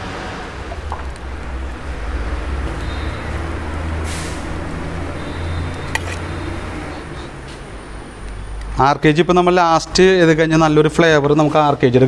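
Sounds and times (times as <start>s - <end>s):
steady low rumble: 0.3s - 9.0s
hiss: 4.0s - 4.6s.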